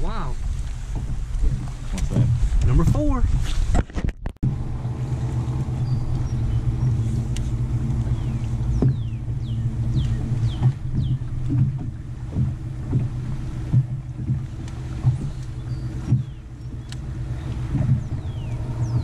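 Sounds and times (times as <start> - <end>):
electric trolling motor humming: 4.4 - 19.0.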